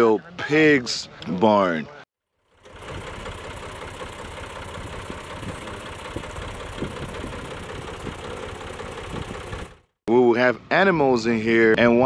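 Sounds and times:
tractor diesel engine idling: 0:02.4 - 0:10.0.

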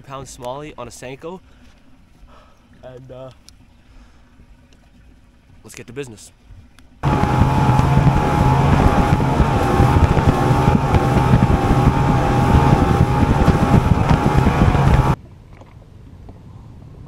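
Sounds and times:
quiet lake ambience: 0:00.0 - 0:16.8
rushing wind and water: 0:06.5 - 0:15.2
outboard motor drone with whine: 0:07.0 - 0:15.2.

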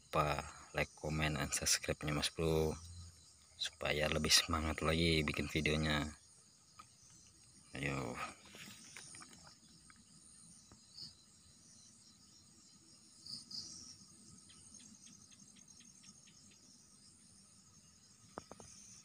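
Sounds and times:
crickets trilling: 0:00.0 - 0:19.0
loud insect chirps: 0:00.0 - 0:19.0.

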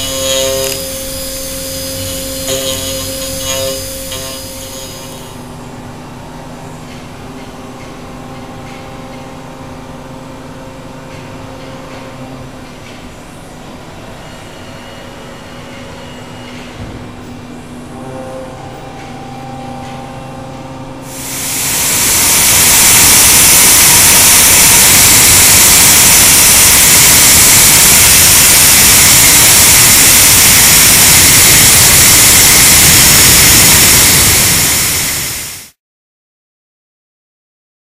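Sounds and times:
high hiss of end mill cutting: 0:00.0 - 0:05.4, 0:21.0 - 0:35.8
milling machine spindle hum: 0:00.0 - 0:11.5, 0:14.0 - 0:35.7.

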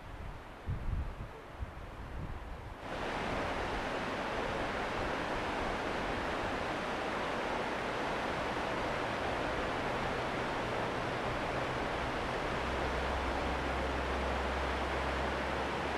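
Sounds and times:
wind on microphone: 0:00.0 - 0:07.0
water rushing over rapids: 0:02.8 - 0:15.9.

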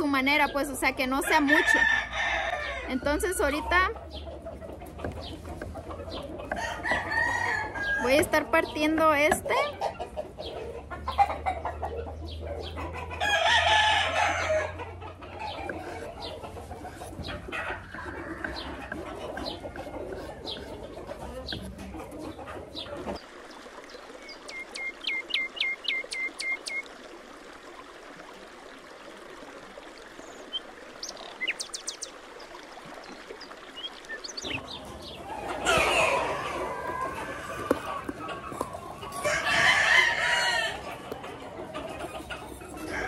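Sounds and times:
chickens clucking: 0:00.0 - 0:23.2, 0:30.5 - 0:43.0
rooster crowing: 0:01.3 - 0:03.3, 0:06.5 - 0:08.2, 0:13.2 - 0:14.8, 0:35.3 - 0:40.9.

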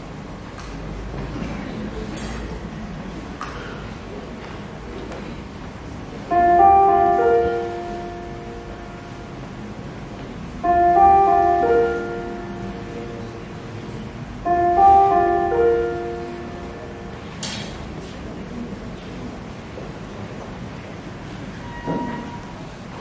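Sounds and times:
piano broken chord: 0:06.2 - 0:18.2.

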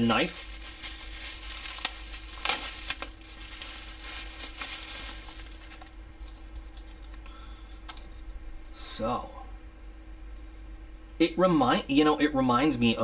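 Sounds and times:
bubble wrap crinkling: 0:00.0 - 0:07.4.

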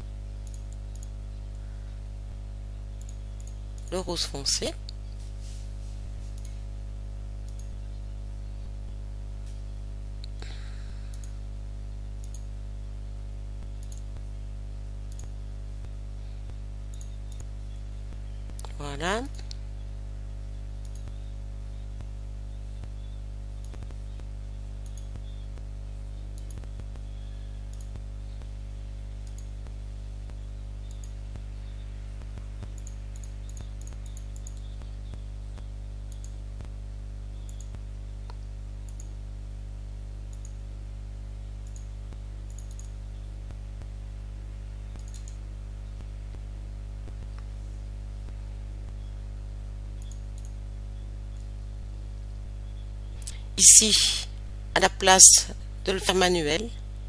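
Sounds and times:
electrical hum: 0:00.0 - 0:57.0
computer mouse clicking: 0:00.4 - 0:01.2, 0:03.0 - 0:03.9, 0:06.2 - 0:06.6, 0:07.4 - 0:07.8, 0:11.1 - 0:11.4, 0:12.2 - 0:12.5, 0:13.7 - 0:14.2, 0:15.1 - 0:15.4, 0:16.5 - 0:17.5, 0:20.8 - 0:21.8, 0:24.8 - 0:25.6, 0:26.4 - 0:27.1, 0:27.7 - 0:28.0, 0:29.2 - 0:29.6, 0:30.3 - 0:31.2, 0:32.3 - 0:35.2, 0:36.1 - 0:36.7, 0:37.4 - 0:39.2, 0:40.3 - 0:40.6, 0:41.6 - 0:41.9, 0:42.5 - 0:42.9, 0:44.9 - 0:45.4, 0:50.0 - 0:50.6.

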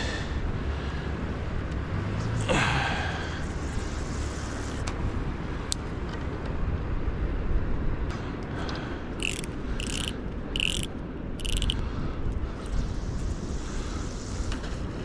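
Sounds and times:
steady low rumble: 0:00.0 - 0:15.0
fishing reel drag clicking: 0:09.2 - 0:11.8.

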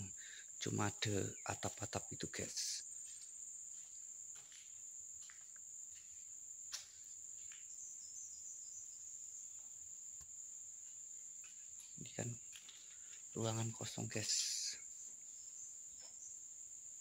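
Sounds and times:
insects droning: 0:00.0 - 0:17.0.

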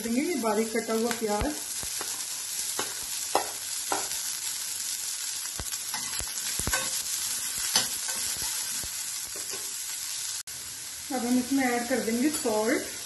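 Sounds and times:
onion sizzling in hot oil: 0:00.0 - 0:13.0
steel spoon scraping a pan: 0:05.9 - 0:09.8.

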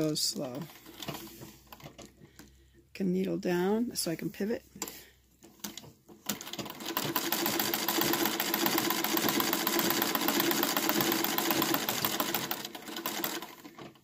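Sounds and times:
treadle sewing machine stitching: 0:05.6 - 0:14.0.

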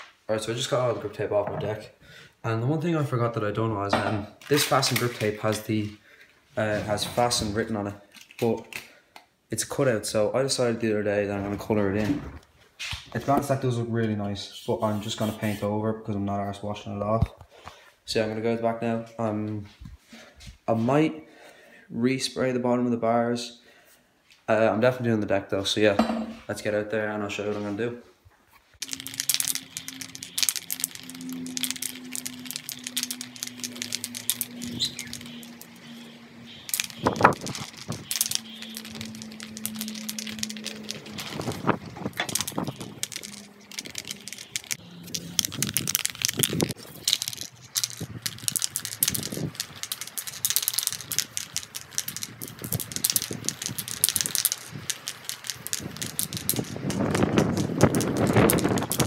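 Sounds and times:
spray can ball rattling: 0:04.4 - 0:05.7, 0:14.8 - 0:15.6, 0:28.8 - 0:59.0.

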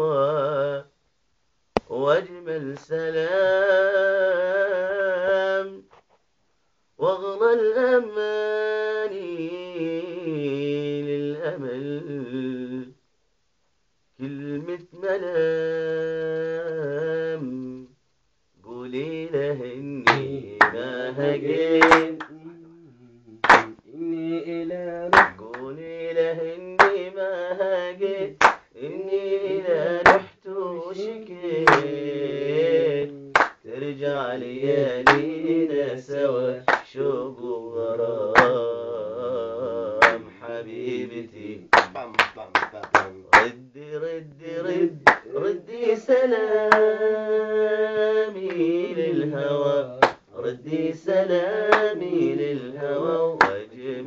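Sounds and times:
man singing unaccompanied: 0:00.0 - 0:01.0, 0:01.8 - 0:05.9, 0:07.0 - 0:13.0, 0:14.2 - 0:18.0, 0:18.6 - 0:54.0
loud hand claps: 0:20.1 - 0:20.9, 0:21.8 - 0:22.4, 0:23.4 - 0:23.8, 0:25.1 - 0:25.7, 0:26.8 - 0:27.0, 0:28.4 - 0:28.7, 0:30.0 - 0:30.4, 0:31.6 - 0:32.0, 0:33.4 - 0:33.6, 0:35.0 - 0:35.3, 0:36.7 - 0:36.9, 0:38.4 - 0:38.6, 0:40.0 - 0:40.2, 0:41.7 - 0:43.6, 0:45.0 - 0:45.3, 0:46.7 - 0:46.9, 0:50.0 - 0:50.3, 0:51.7 - 0:51.9, 0:53.4 - 0:53.6.

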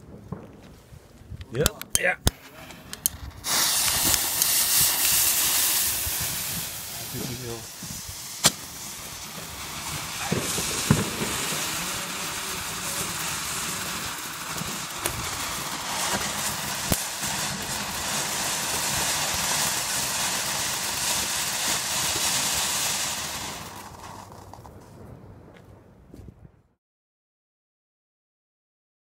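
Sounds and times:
sharp firework cracks: 0:00.0 - 0:25.6
firework fountains hissing: 0:02.2 - 0:24.7.

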